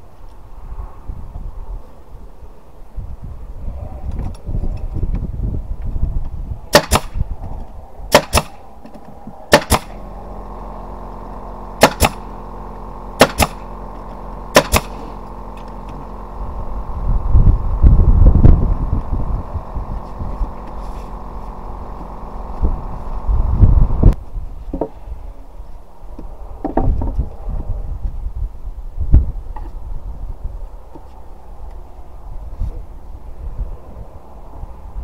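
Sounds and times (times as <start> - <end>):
steady hum: 0.0 - 35.0
loud low rumble: 3.5 - 24.2
nail gun firing into wood: 6.7 - 7.2, 8.1 - 10.1, 11.8 - 12.3, 13.2 - 13.7, 14.5 - 16.1.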